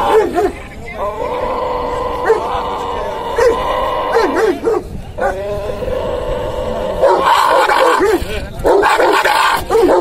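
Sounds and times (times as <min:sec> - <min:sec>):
dogs barking: 0:00.0 - 0:00.6, 0:02.2 - 0:02.6, 0:03.3 - 0:05.4, 0:07.0 - 0:10.0.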